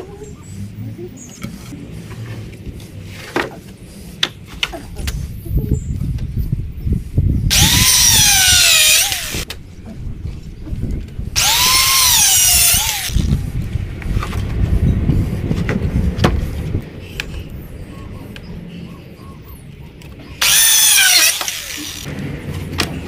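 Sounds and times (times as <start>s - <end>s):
power drill running: 7.5s - 9.4s, 11.4s - 13.3s, 20.4s - 22.1s.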